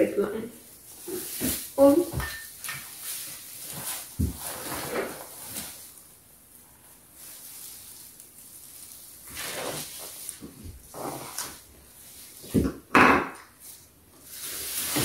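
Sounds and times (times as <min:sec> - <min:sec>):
branches rustling and scraping: 0:07.0 - 0:12.4.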